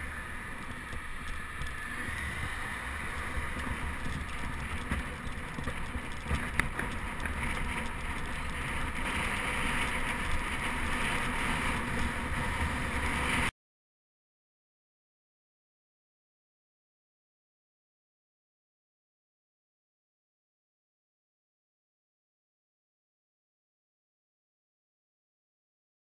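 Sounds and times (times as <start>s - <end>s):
road rumble: 0.0s - 13.5s.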